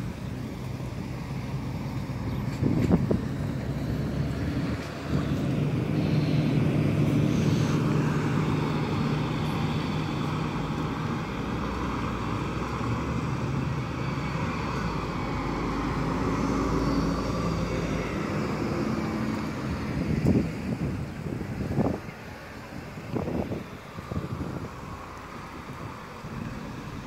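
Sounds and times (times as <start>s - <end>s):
bus engine pulling away: 0.0s - 27.0s
cars driving past: 0.0s - 27.0s.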